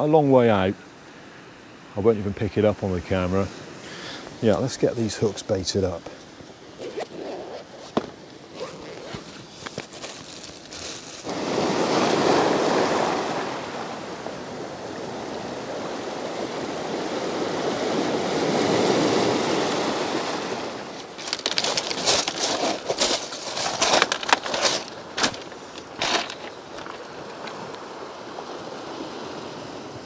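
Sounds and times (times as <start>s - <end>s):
waves washing over pebbles: 10.4s - 30.0s
pebbles crunching: 21.0s - 27.7s.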